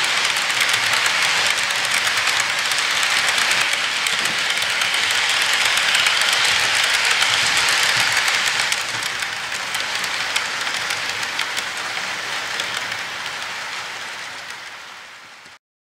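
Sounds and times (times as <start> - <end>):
model train cars rolling on track: 0.0 - 15.6
wheels clicking on rail joints: 0.0 - 15.6.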